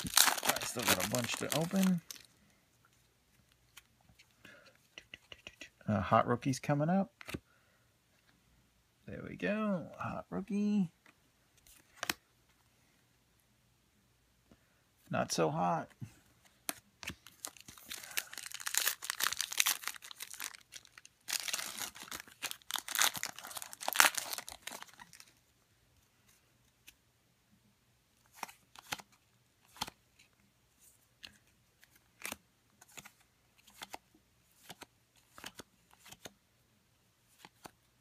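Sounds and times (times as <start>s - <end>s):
plastic wrapper tearing and crinkling: 0.0s - 2.3s, 17.2s - 25.3s
trading cards snapping and sliding: 29.7s - 30.0s, 31.2s - 34.0s, 34.6s - 36.3s.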